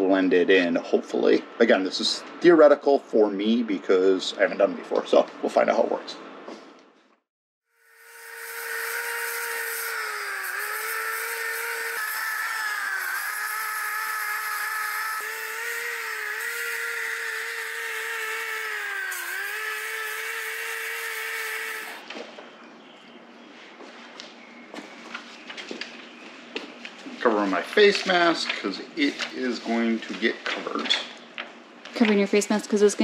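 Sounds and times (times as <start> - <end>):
electric sander running: 7.8 - 22.0.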